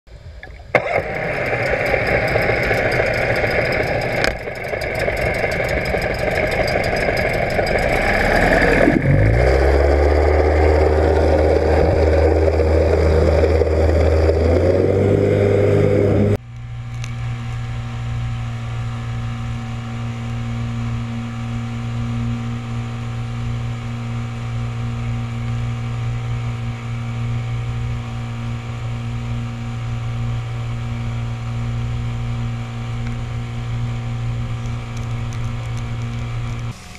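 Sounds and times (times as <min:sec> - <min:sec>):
outboard motor underwater churning: 0:00.1 - 0:16.4
outboard engine running: 0:00.2 - 0:36.9.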